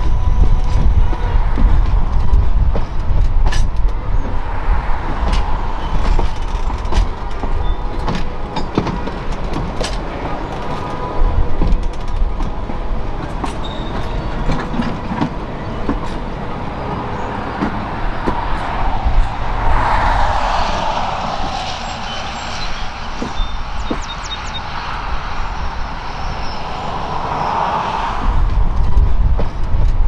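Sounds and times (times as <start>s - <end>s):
steam train wheels clicking on rails: 0.0s - 30.0s
rushing swell: 16.2s - 29.3s.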